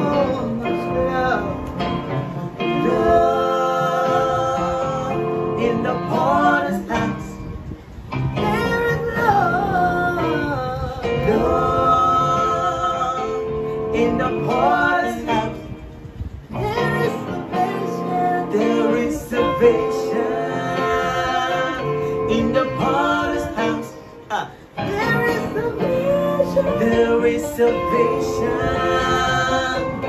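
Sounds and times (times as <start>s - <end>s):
man and woman singing duet: 0.0s - 7.6s, 8.4s - 15.9s, 16.5s - 30.0s.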